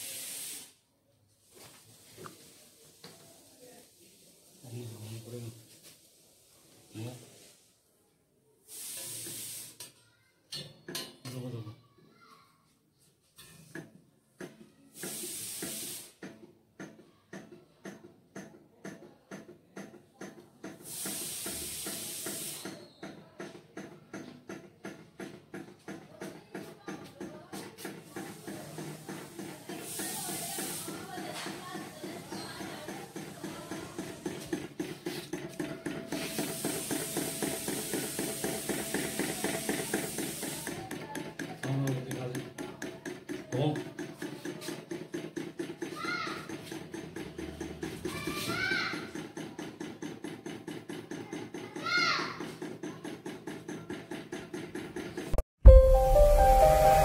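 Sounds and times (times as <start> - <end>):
rushing hiss: 0.0 - 0.8, 29.8 - 31.1
steady hiss: 0.0 - 0.8, 8.7 - 9.8
fan engine knocking rhythmically: 31.2 - 48.1, 49.0 - 51.8, 52.4 - 55.4.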